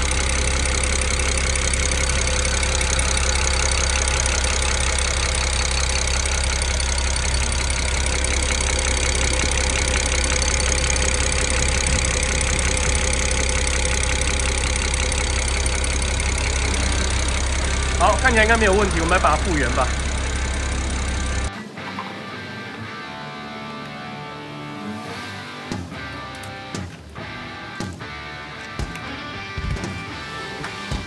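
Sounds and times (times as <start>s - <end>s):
car engine idling: 0.0s - 21.5s
fuel injectors ticking rapidly: 0.0s - 21.5s.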